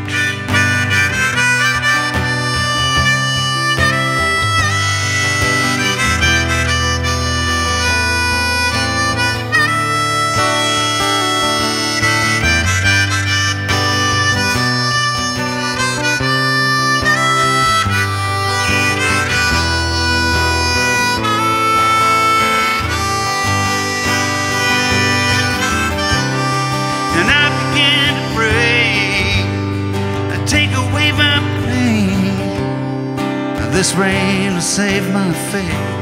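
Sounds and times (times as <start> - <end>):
harmonica solo: 0.0 - 36.0
strummed acoustic guitar: 0.0 - 36.0.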